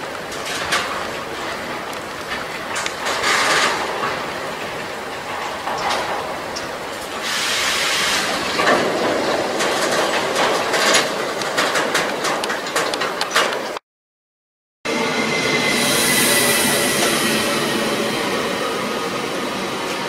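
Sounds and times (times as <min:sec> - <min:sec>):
train wheels rumbling on rails: 0:00.0 - 0:13.8, 0:14.9 - 0:20.0
wheels clicking over rail joints: 0:00.0 - 0:13.8.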